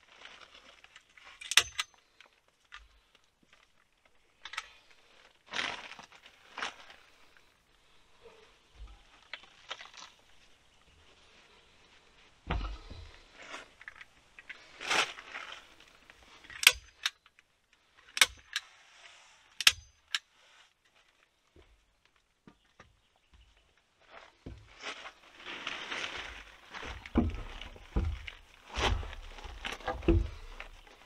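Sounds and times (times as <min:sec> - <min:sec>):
dull thump: 0:12.4 - 0:13.2, 0:26.8 - 0:31.0
staple gun firing: 0:16.6 - 0:17.1, 0:18.2 - 0:18.6, 0:19.6 - 0:20.2.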